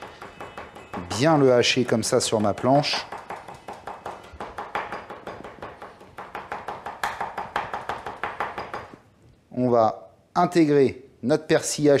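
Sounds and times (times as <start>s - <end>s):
knife chopping on wooden board: 0.0s - 9.0s.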